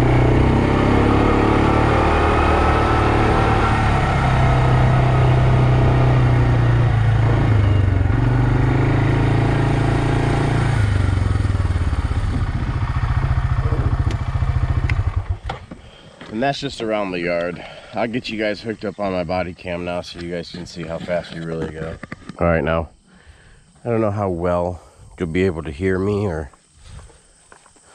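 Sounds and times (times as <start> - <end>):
quad bike engine running: 0.0 - 15.7.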